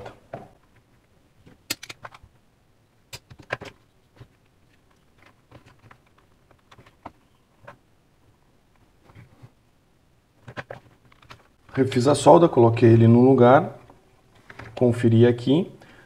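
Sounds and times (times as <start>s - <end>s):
clicks and rattles of handling parts: 0.0s - 2.4s, 3.1s - 7.8s, 10.4s - 11.6s, 13.8s - 14.9s.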